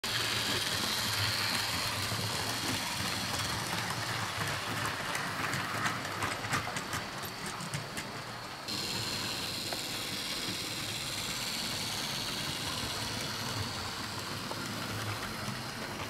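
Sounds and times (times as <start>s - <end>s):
model train motor hum: 0.0s - 16.0s.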